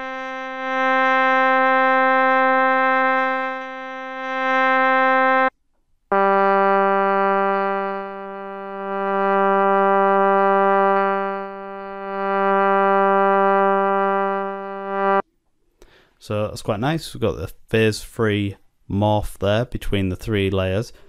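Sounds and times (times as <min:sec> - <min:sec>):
sustained sampled instrument notes: 0:00.0 - 0:05.5, 0:06.1 - 0:15.2.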